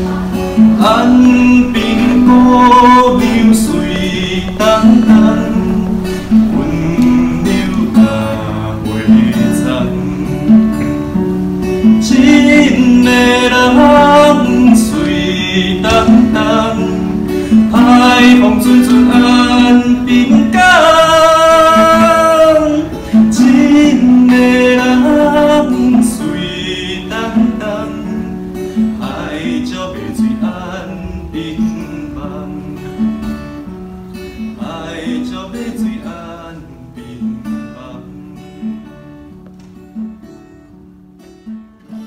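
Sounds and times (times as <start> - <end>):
person singing: 0.0 - 11.0, 11.8 - 33.2
acoustic guitar plucked: 0.0 - 42.0.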